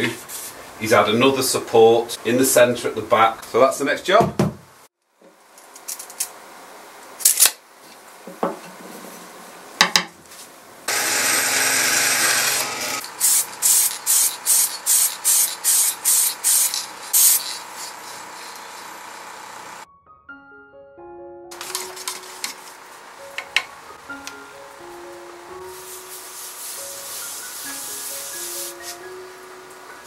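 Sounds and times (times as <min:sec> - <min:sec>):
bandsaw cutting wood: 0:10.9 - 0:19.8
saw motor hum: 0:10.9 - 0:19.9.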